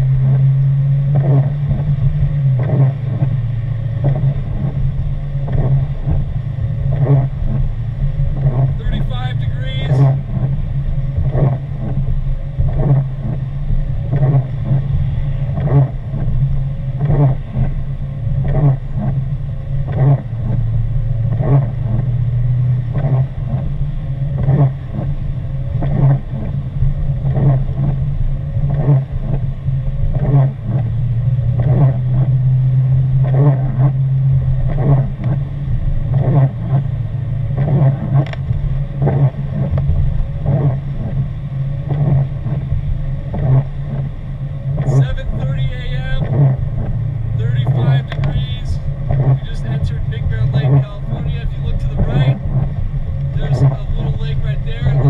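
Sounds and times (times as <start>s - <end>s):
car engine and tyres droning: 0.0s - 55.0s
windshield wipers swishing: 0.0s - 55.0s.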